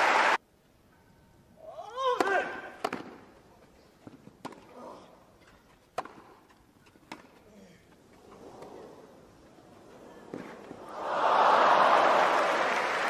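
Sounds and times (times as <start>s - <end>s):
tennis ball struck by racquet: 2.2s - 3.2s.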